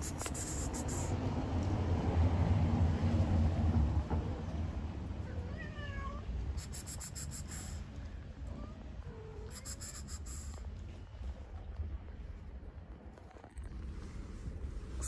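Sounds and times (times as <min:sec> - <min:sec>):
cat meowing: 0:05.2 - 0:07.5, 0:08.4 - 0:10.5
steady low rumble: 0:06.1 - 0:15.0.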